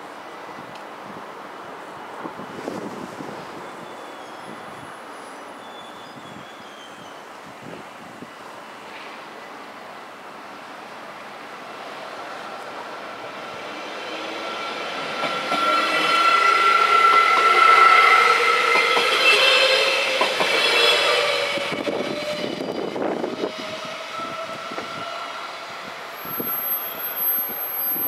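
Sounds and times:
electric train passing: 8.4 - 28.0.

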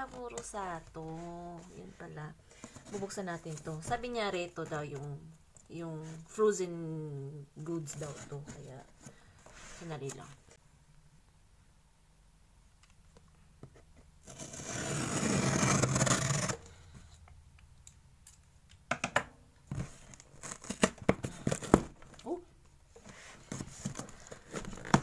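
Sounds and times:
cardboard tearing: 14.2 - 16.6
rustling of packing: 23.0 - 25.0.

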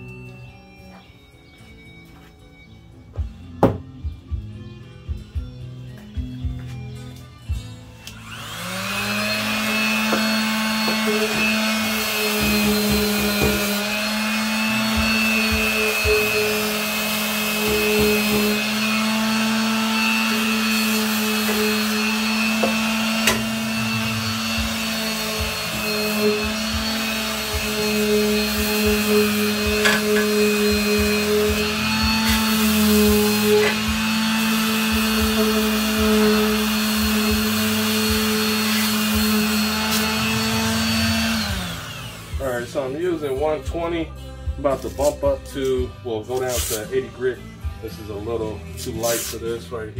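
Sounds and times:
electric sander motor humming: 7.9 - 42.8
gritty sanding hiss: 46.3 - 47.0, 48.8 - 49.6.

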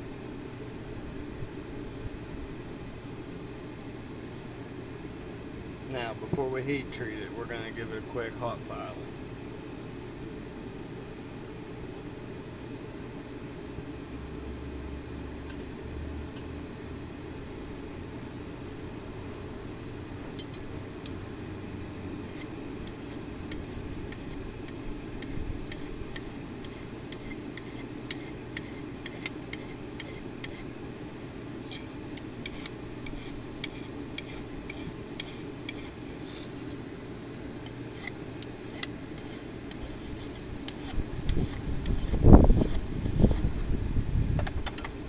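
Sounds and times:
file scraping metal: 22.2 - 30.7, 31.6 - 36.8, 37.5 - 43.5.

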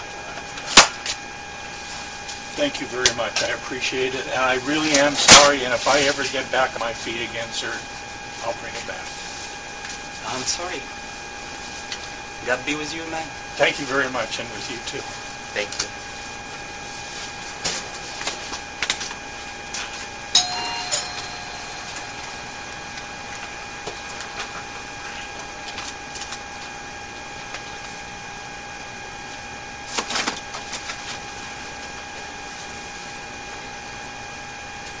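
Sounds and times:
short beep: 20.4 - 22.8
steady electronic whine: 20.4 - 25.6.

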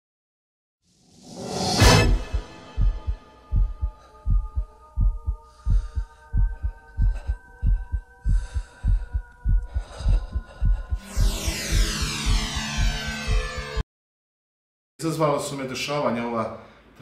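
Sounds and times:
drone of held tones: 1.9 - 13.8
heartbeat double thumps: 2.0 - 13.8.

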